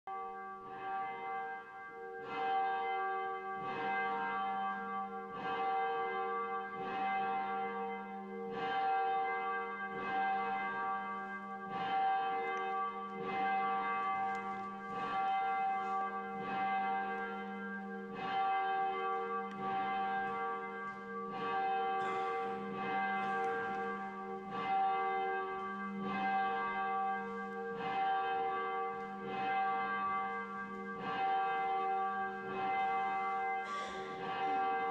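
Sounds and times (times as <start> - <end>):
church bell tolling: 0.1 - 34.9.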